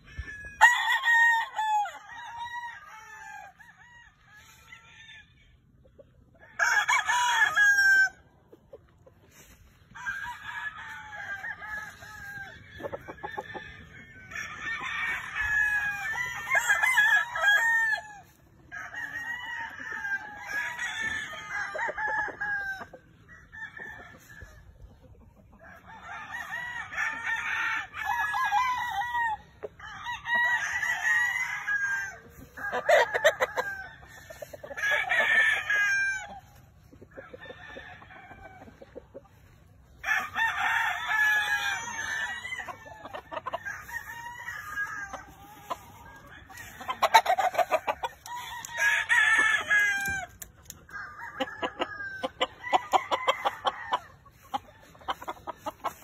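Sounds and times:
roosters crowing: 0:00.0 - 0:05.7, 0:06.3 - 0:08.3, 0:09.3 - 0:56.0.

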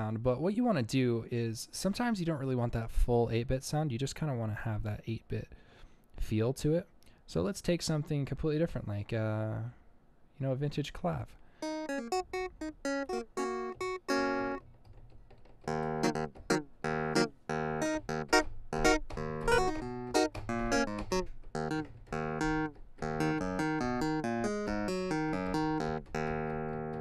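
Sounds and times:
clavinet notes: 0:11.6 - 0:14.6, 0:15.7 - 0:27.0.

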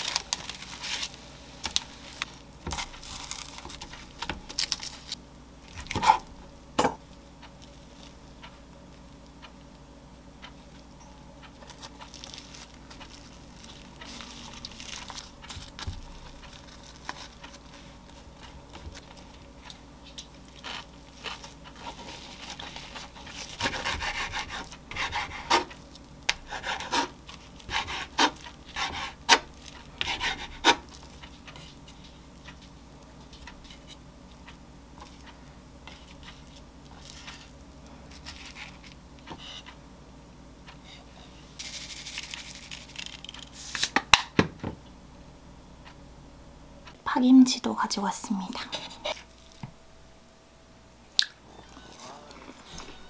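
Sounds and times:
hands rubbing seaweed roll: 0:11.7 - 0:32.5, 0:41.6 - 0:43.9
sesame grinder rasp: 0:20.6 - 0:25.7, 0:26.3 - 0:30.8.

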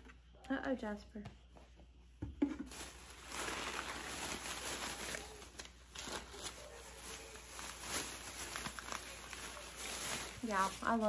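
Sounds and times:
bag and tissue paper rustling: 0:02.7 - 0:11.0.

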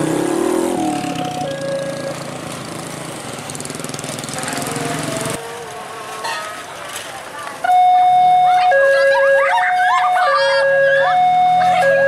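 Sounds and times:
motorcycle engines revving: 0:00.0 - 0:12.0
two-tone crossing alarm: 0:00.8 - 0:02.2, 0:07.6 - 0:12.0.

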